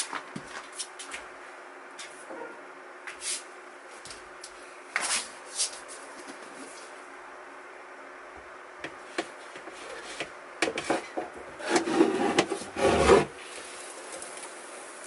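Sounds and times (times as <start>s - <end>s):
snake body scraping over wood: 11.6s - 13.4s.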